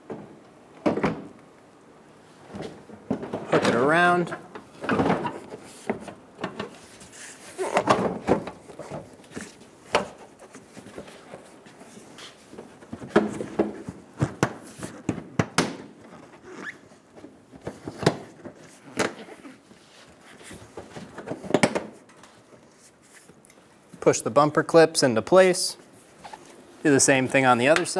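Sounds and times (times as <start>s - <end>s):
rustling handling noise: 25.8s - 27.9s.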